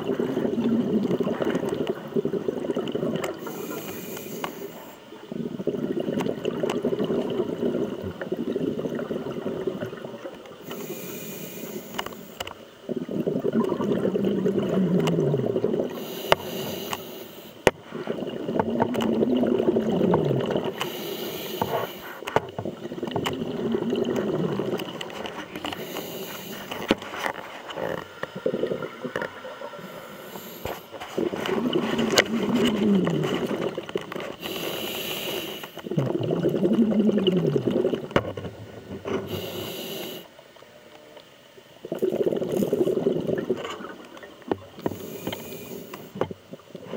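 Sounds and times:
diver breathing through regulator: 0:03.4 - 0:05.0, 0:10.6 - 0:12.4, 0:15.9 - 0:18.2, 0:20.4 - 0:22.3, 0:25.7 - 0:29.0, 0:29.8 - 0:33.7, 0:34.3 - 0:35.9, 0:39.1 - 0:40.3, 0:44.8 - 0:46.2
bubbles bursting: 0:12.9 - 0:16.0, 0:17.9 - 0:20.8, 0:22.6 - 0:25.9, 0:27.8 - 0:34.5, 0:35.8 - 0:39.4, 0:41.8 - 0:44.9.

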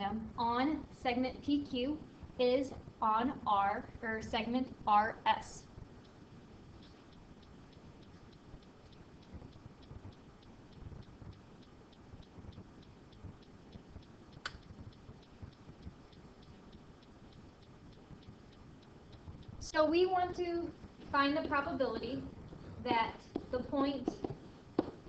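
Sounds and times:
faint regular ticking: 0:00.0 - 0:25.0
low room noise: 0:00.0 - 0:25.0
sharp click: 0:07.1 - 0:19.6.

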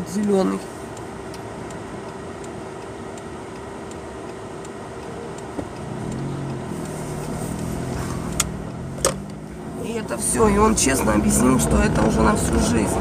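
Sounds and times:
car engine idling: 0:00.0 - 0:13.0
faint regular ticking: 0:00.0 - 0:13.0
car engine revving: 0:01.2 - 0:13.0.

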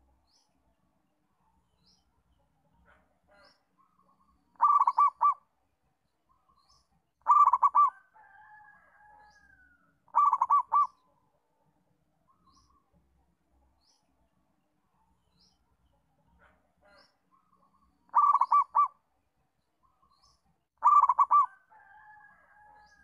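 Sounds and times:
dove cooing: 0:04.6 - 0:05.4, 0:07.2 - 0:08.1, 0:10.1 - 0:11.0, 0:18.1 - 0:19.0, 0:20.8 - 0:21.9.

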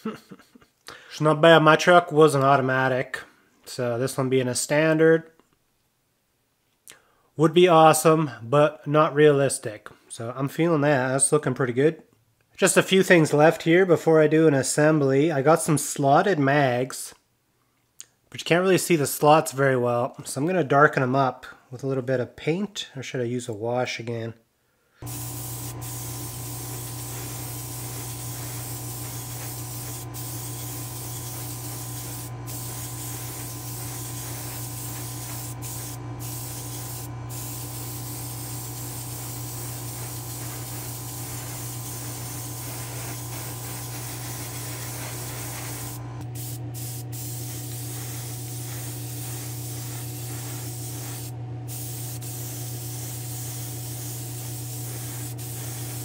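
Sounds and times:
airbrush spraying hiss: 0:25.0 - 0:56.0
steady low hum: 0:25.0 - 0:56.0.

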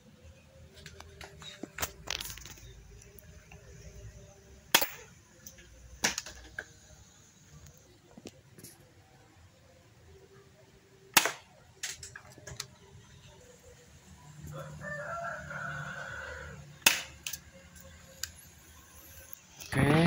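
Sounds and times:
airsoft pistol shots: 0:04.7 - 0:05.1, 0:11.1 - 0:11.6, 0:16.8 - 0:17.2
rooster crowing: 0:14.4 - 0:16.7.

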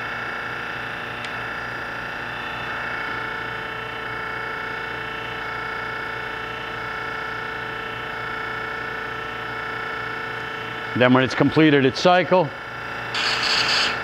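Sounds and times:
grinder motor hum and whine: 0:00.0 - 0:11.8, 0:12.6 - 0:14.0
rhythmic pulsing hum: 0:13.1 - 0:14.0.

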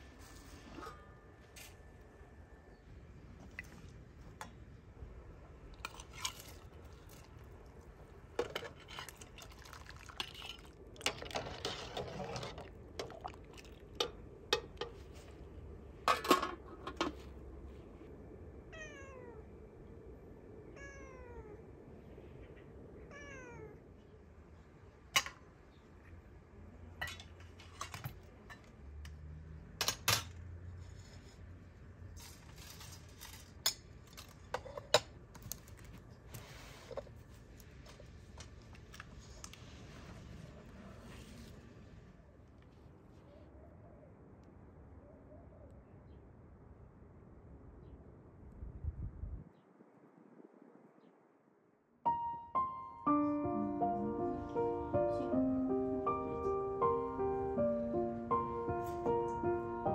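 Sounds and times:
bowls and utensils clinking: 0:05.8 - 0:07.5, 0:08.4 - 0:15.2
cat meowing: 0:18.7 - 0:19.5, 0:20.7 - 0:21.7, 0:23.0 - 0:23.9.

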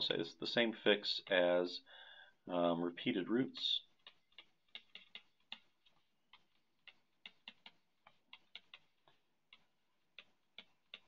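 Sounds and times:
stylus tapping on glass screen: 0:03.9 - 0:11.0.

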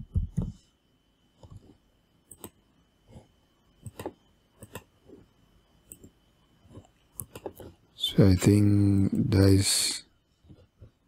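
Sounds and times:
keyboard and mouse clicks: 0:02.3 - 0:02.6, 0:03.8 - 0:04.9, 0:05.9 - 0:07.7.

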